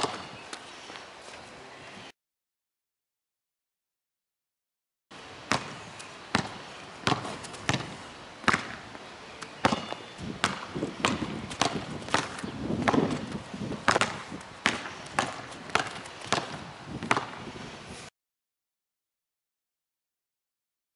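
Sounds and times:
basketball bouncing on asphalt: 0.0 - 0.4, 5.4 - 17.5.

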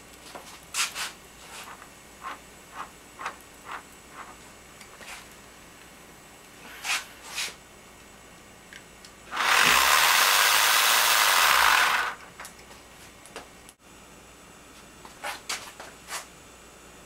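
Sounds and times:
rotary tool whirring: 9.3 - 12.2.

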